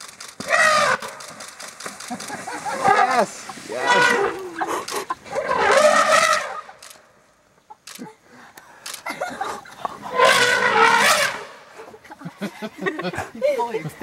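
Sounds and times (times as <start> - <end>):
elephant trumpeting: 0.4 - 1.3, 2.6 - 6.8, 10.1 - 11.7.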